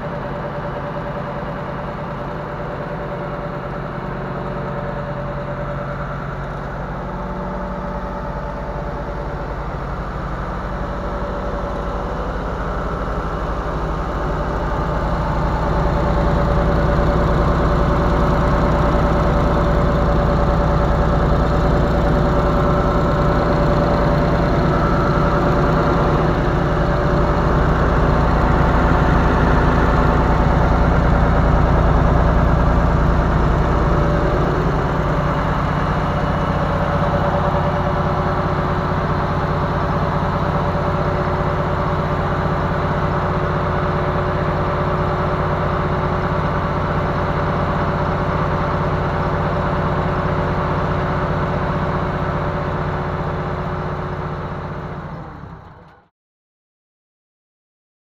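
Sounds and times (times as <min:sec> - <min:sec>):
air compressor running: 0:00.0 - 0:55.6.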